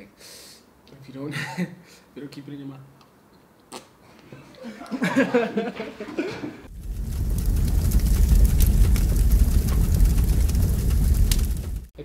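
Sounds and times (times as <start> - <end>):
fire crackling: 6.7 - 12.0
fire low rumble: 6.7 - 12.0.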